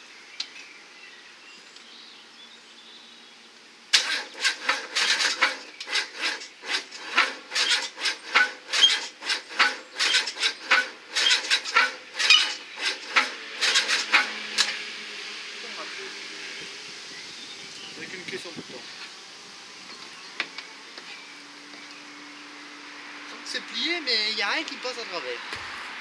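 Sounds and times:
starter motor cranking engine: 3.9s - 15.0s.

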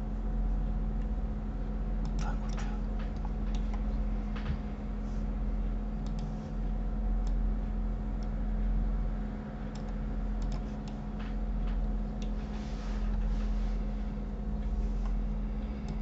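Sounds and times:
steady low hum: 0.0s - 16.0s
computer mouse and keyboard clicks: 2.0s - 4.6s, 6.0s - 6.5s, 9.7s - 12.4s.

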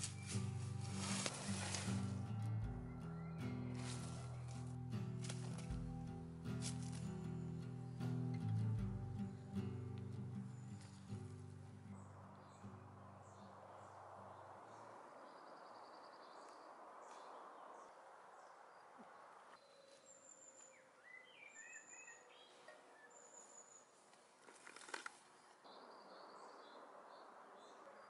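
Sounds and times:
small birds chirping: 0.0s - 28.0s
cluster of clicks: 24.4s - 25.3s.

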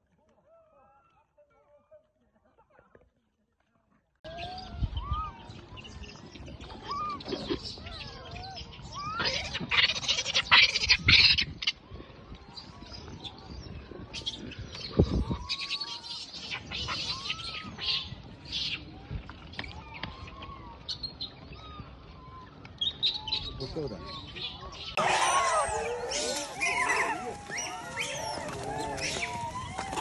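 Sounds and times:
monkeys squealing and screeching: 6.8s - 11.4s, 25.0s - 30.0s.

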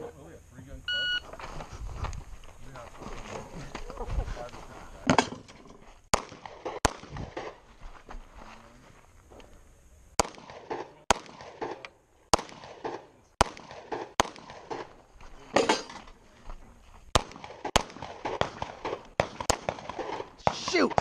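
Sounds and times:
pistol shots with echo: 10.2s - 15.0s, 17.2s - 21.0s.

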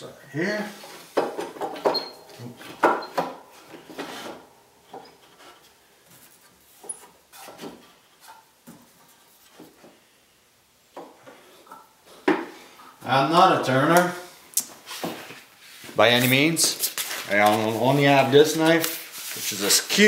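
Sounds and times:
wood knocking and scraping: 0.9s - 10.0s, 10.9s - 12.6s.

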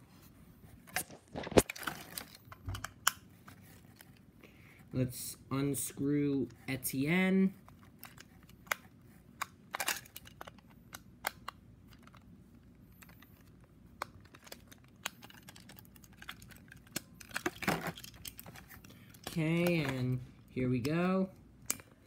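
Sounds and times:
screwdriver and plastic parts clicking: 7.6s - 12.2s, 13.0s - 20.2s.

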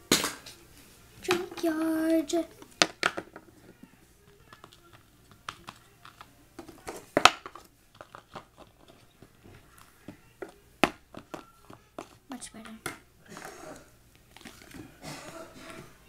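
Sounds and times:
plastic toys clicking and tapping: 2.6s - 13.0s.

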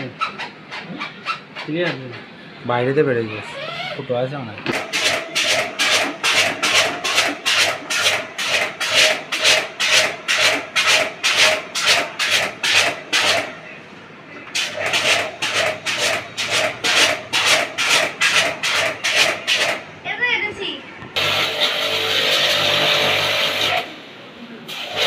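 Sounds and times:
rapid rasping strokes: 4.8s - 13.5s, 14.6s - 19.8s.

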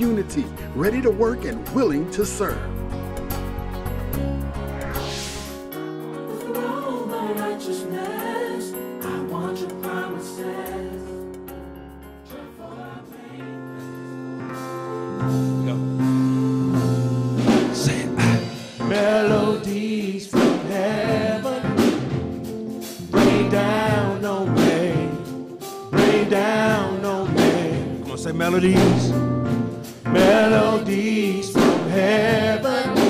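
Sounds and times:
soft keyboard chords: 0.0s - 4.6s, 5.8s - 19.6s, 20.8s - 33.0s
drums: 0.0s - 5.8s, 13.8s - 33.0s
praise team singing: 6.2s - 11.5s, 12.2s - 14.2s, 17.5s - 22.4s, 23.0s - 29.2s, 29.8s - 33.0s.

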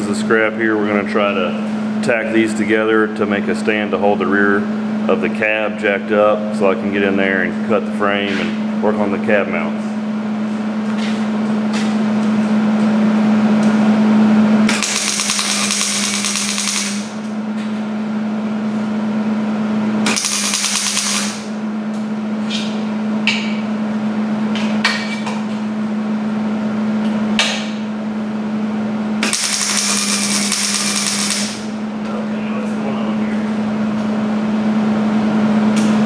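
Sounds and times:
steady low hum: 0.0s - 36.0s
welder crackling and sputtering: 14.7s - 17.1s, 20.1s - 21.5s, 29.2s - 31.7s.

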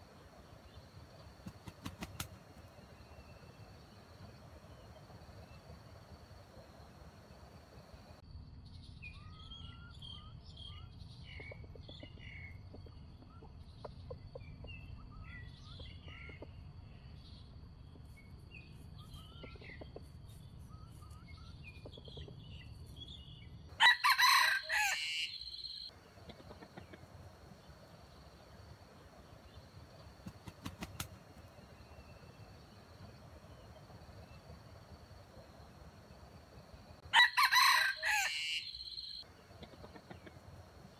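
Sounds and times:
rooster crowing: 23.8s - 25.8s, 37.0s - 39.2s.

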